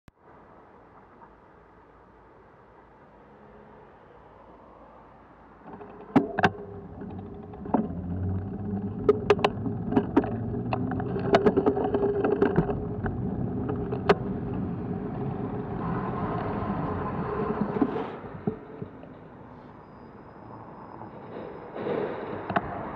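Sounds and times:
wind noise: 5.6 - 19.4
bicycle knocks and rattles: 5.7 - 15.5
bicycle tyre noise: 5.7 - 19.0
truck passing close by: 14.2 - 19.7.

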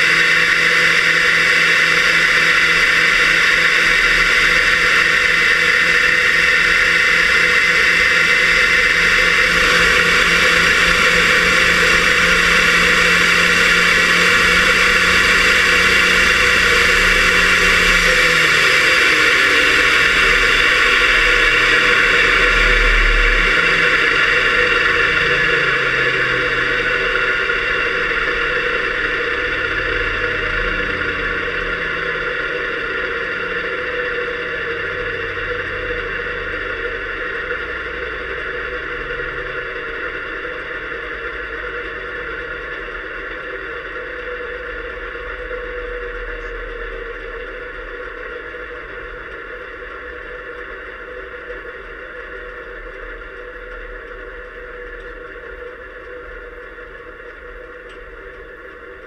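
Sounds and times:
jet engine whine: 0.0 - 59.0.

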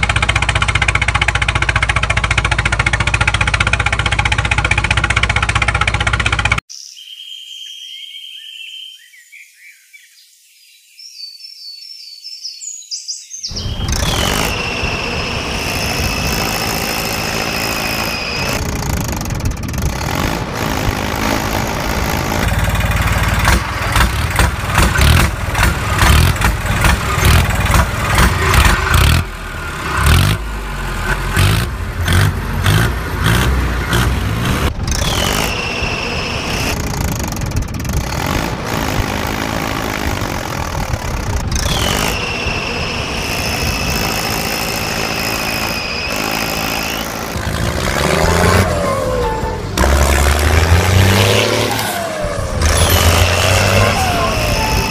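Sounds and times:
tractor diesel engine: 0.0 - 6.7, 13.5 - 54.9
high whine: 48.3 - 54.9.

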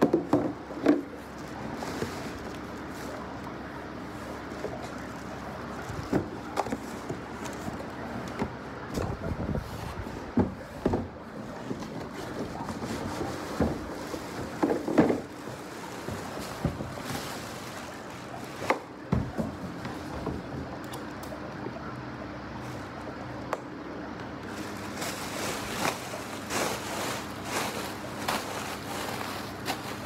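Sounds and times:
steady low hum: 0.0 - 30.0
plastic wrap crinkling: 11.5 - 18.9, 24.4 - 30.0.

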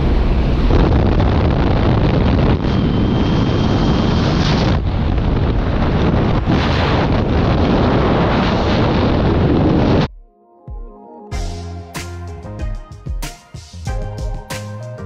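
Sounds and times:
aircraft running: 0.0 - 10.1
wind buffeting microphone: 0.0 - 10.1.

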